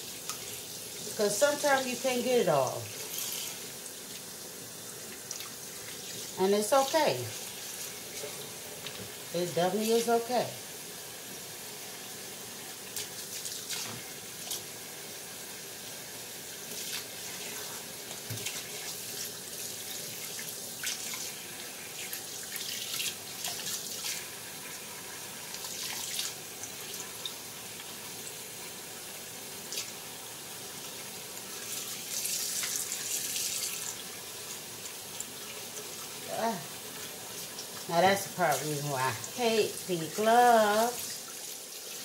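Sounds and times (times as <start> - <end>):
faucet water running on meat: 0.0 - 42.0.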